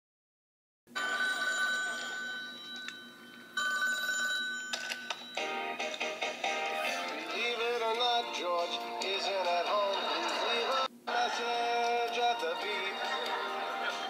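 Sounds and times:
telephone ringing: 0:01.0 - 0:05.9.

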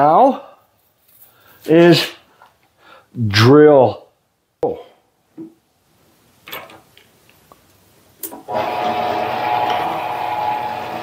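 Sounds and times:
metal lathe humming and whining: 0:08.5 - 0:11.0.

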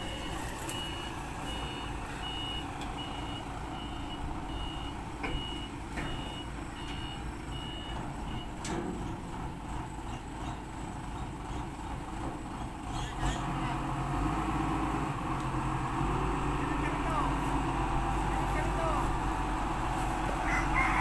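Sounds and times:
reversing alarm beeping: 0:00.0 - 0:08.6
forklift engine running: 0:00.0 - 0:21.0.

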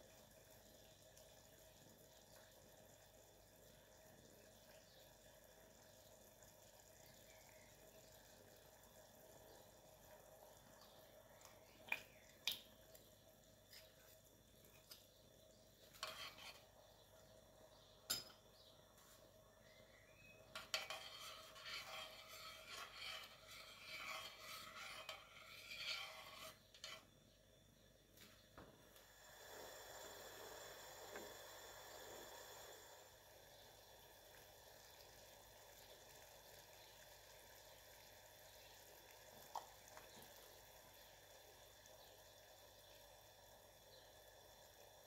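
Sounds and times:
stirring and scraping syrup: 0:09.5 - 0:17.9, 0:20.2 - 0:27.3
metal spoon clinking on saucepan: 0:18.1 - 0:18.4.

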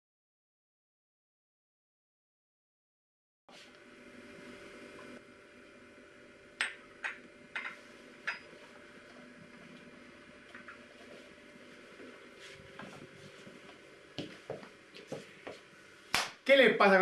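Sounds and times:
low room hum: 0:03.5 - 0:17.0
coffee cup clinking on saucer: 0:06.6 - 0:08.5.

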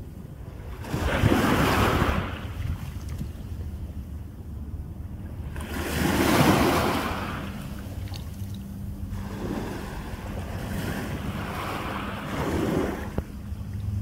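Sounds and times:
small waves washing over sand: 0:00.0 - 0:03.6, 0:05.4 - 0:13.9
wind buffeting microphone: 0:00.0 - 0:08.1.

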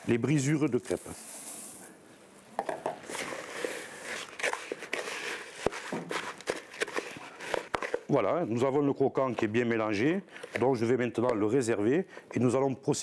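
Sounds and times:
flakes poured into plastic bowl: 0:00.4 - 0:01.9
spatula stirring and scraping bowl: 0:03.0 - 0:08.1.

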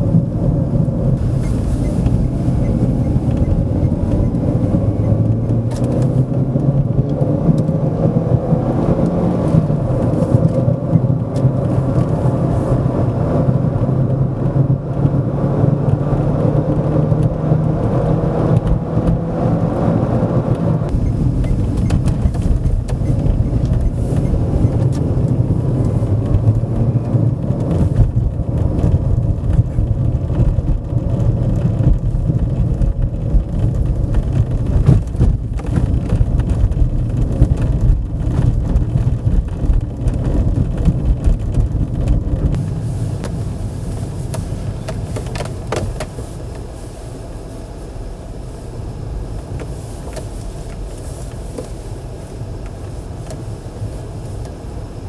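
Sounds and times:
road and tyre noise: 0:00.0 - 0:55.0
droning hum: 0:20.9 - 0:40.1.

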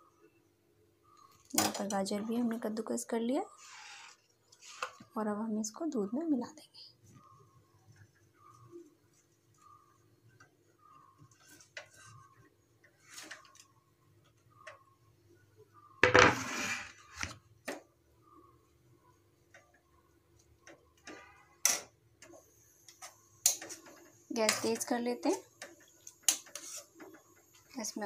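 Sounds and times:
carrots sliding into pan: 0:16.2 - 0:17.1
spoon knocking and scraping pan: 0:23.0 - 0:24.9, 0:25.8 - 0:27.2.

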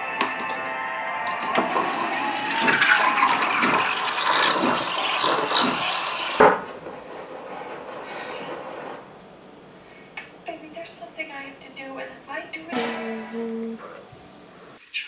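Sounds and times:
steam wand frothing milk: 0:01.3 - 0:06.4.

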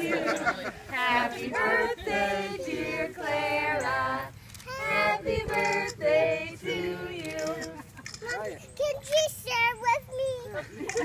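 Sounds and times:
women and children singing: 0:00.0 - 0:07.8.

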